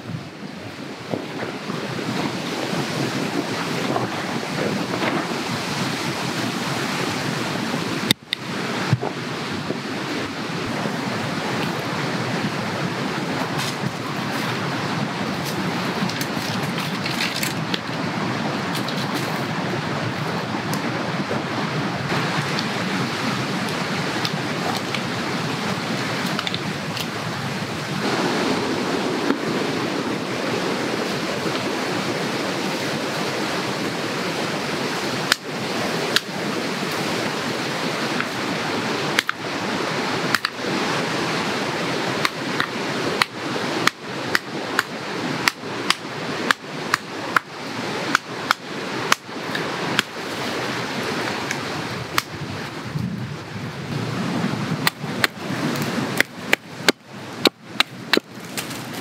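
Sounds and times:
rushing wind: 0:00.0 - 0:59.0
hatchet chopping firewood: 0:15.4 - 0:17.8, 0:39.1 - 0:39.4, 0:40.2 - 0:40.6, 0:42.2 - 0:50.2, 0:51.2 - 0:52.4, 0:54.8 - 0:59.0.

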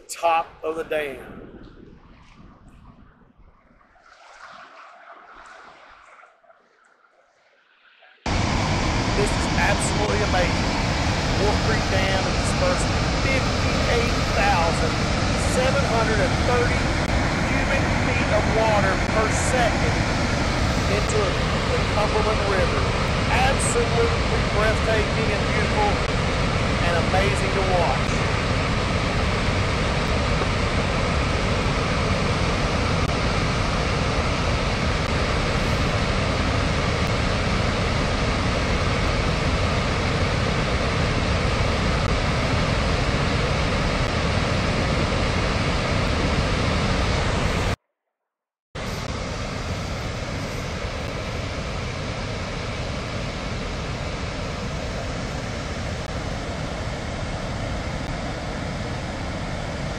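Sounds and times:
water rushing through spillway: 0:08.3 - 0:47.8.

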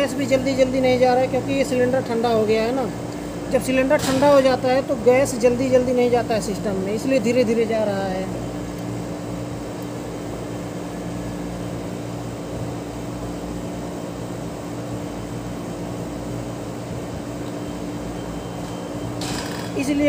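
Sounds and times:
air conditioner compressor hum: 0:00.0 - 0:20.0
fan air noise: 0:00.0 - 0:20.0.

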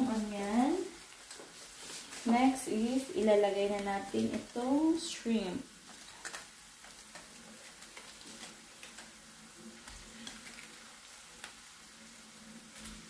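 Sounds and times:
onions sizzling in butter: 0:00.0 - 0:13.0
small crackles: 0:00.0 - 0:13.0.

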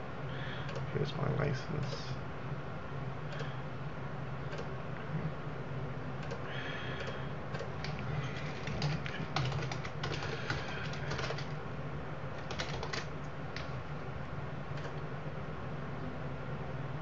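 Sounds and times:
low electrical hum: 0:00.0 - 0:17.0
keyboard and mouse clicking: 0:07.0 - 0:11.6, 0:12.4 - 0:13.8.

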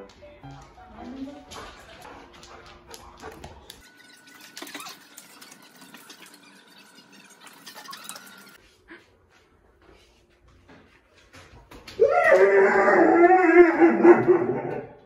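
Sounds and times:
dog claws clicking on wooden floor: 0:00.0 - 0:03.9.

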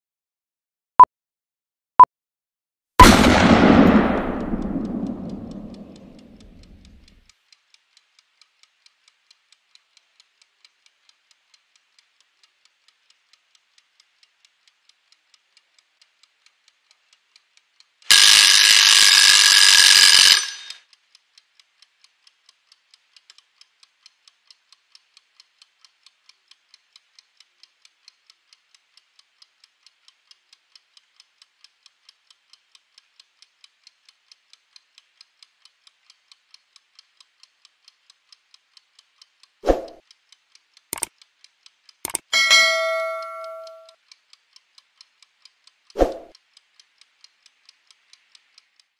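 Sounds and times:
kitchen timer ticking: 0:04.0 - 0:48.9
timer bell ringing: 0:42.3 - 0:43.9.

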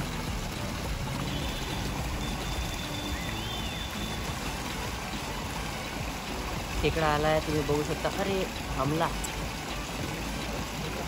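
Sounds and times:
faint high chirp: 0:01.3 - 0:04.2.

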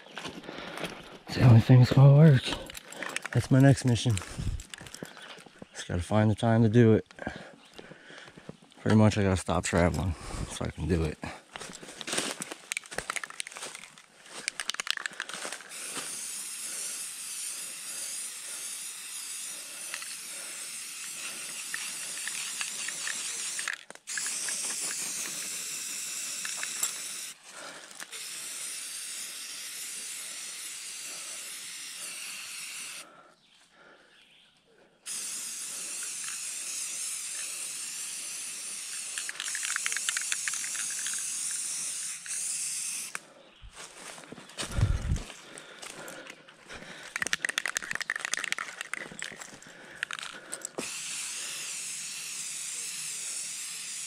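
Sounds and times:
aerosol spray can hissing: 0:15.7 - 0:27.4, 0:28.1 - 0:33.0, 0:35.1 - 0:43.2, 0:50.0 - 0:54.0.

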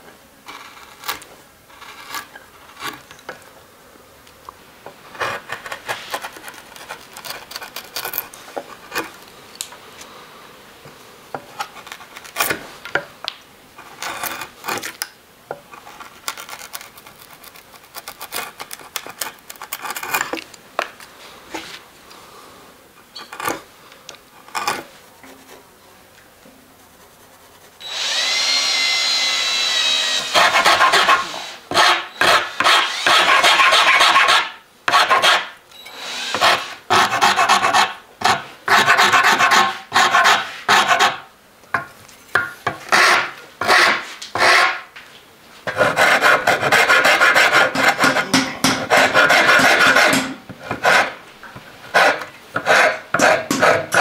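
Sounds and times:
hand rasp filing wood: 0:28.2 - 0:35.5, 0:36.1 - 0:41.2, 0:42.9 - 0:44.8, 0:45.7 - 0:51.2, 0:51.9 - 0:54.0
gouge slicing wood: 0:45.8 - 0:51.2, 0:52.0 - 0:54.0.

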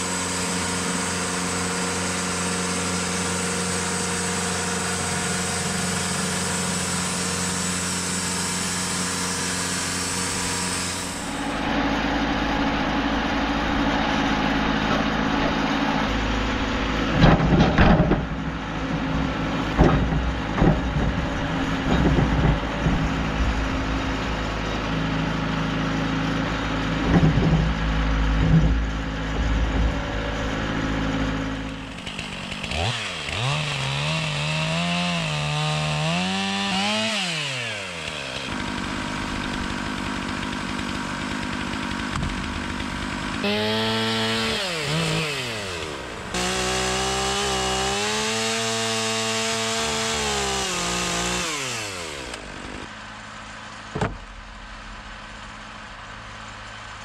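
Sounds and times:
chainsaw revving: 0:00.0 - 0:54.0
low engine drone: 0:08.4 - 0:32.6, 0:51.5 - 0:57.0
knocks: 0:19.7 - 0:23.6, 0:53.9 - 0:54.3.

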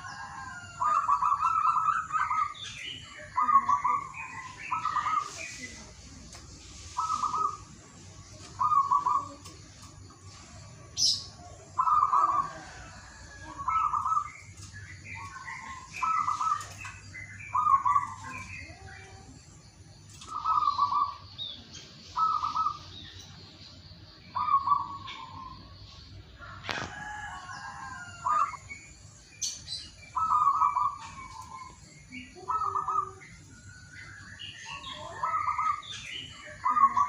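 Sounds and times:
dove cooing: 0:00.0 - 0:02.6, 0:07.0 - 0:07.8, 0:08.4 - 0:09.6, 0:11.0 - 0:14.4, 0:15.1 - 0:19.2, 0:20.2 - 0:21.3, 0:22.1 - 0:22.9, 0:24.4 - 0:25.7, 0:30.2 - 0:33.3, 0:34.7 - 0:35.9, 0:36.6 - 0:37.0
small birds chirping: 0:00.0 - 0:37.0.

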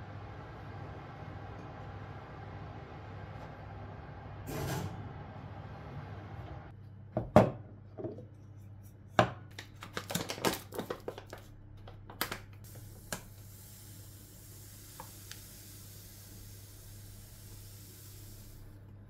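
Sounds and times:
paper bag crinkling: 0:09.6 - 0:11.5.

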